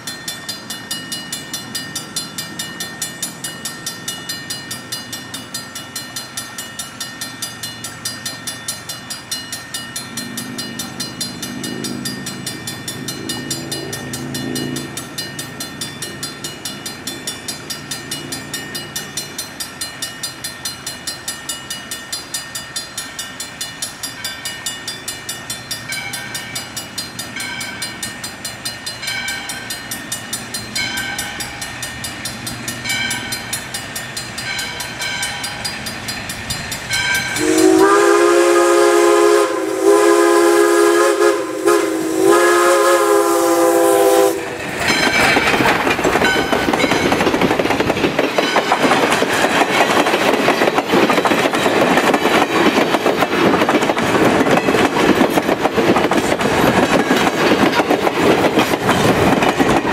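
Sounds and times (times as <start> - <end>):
crossing signal bell ringing: 0.0 - 53.4
steam whistle blasts: 37.4 - 44.6.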